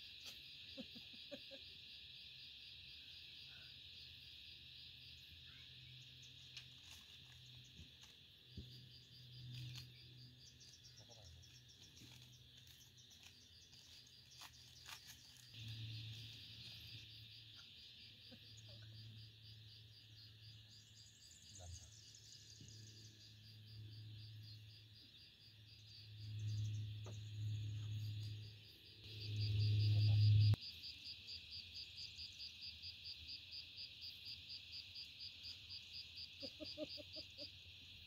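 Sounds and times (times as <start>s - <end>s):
crickets chirping: 0.0s - 38.0s.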